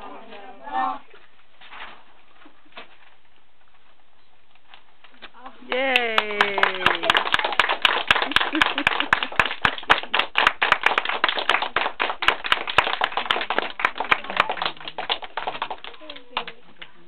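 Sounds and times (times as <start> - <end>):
audience applause: 5.7 - 16.6.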